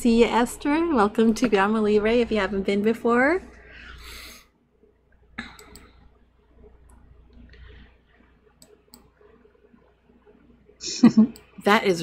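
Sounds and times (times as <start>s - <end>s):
low steady hum: 0.0s - 12.0s
computer control clicks: 5.6s - 5.9s.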